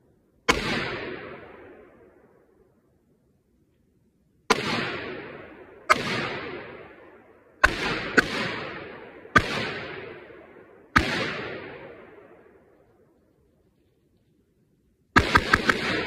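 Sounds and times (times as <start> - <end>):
rifle shots with echo: 0.4 - 2.6, 4.5 - 13.1, 15.1 - 16.0.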